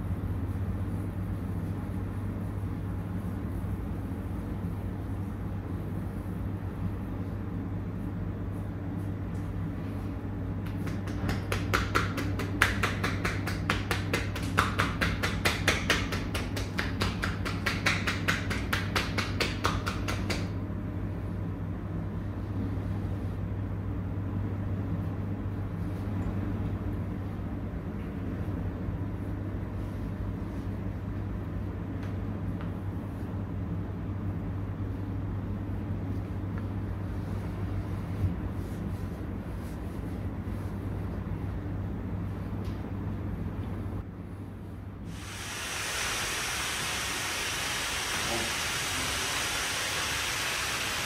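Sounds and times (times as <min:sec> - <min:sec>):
steady low hum: 0:00.0 - 0:51.0
hands slapping in massage: 0:10.6 - 0:20.6.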